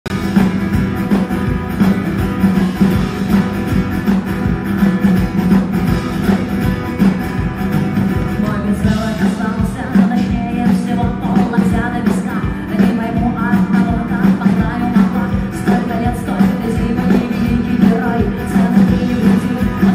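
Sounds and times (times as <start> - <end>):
acoustic guitar strummed: 0.1 - 19.9
woman singing: 8.3 - 19.9.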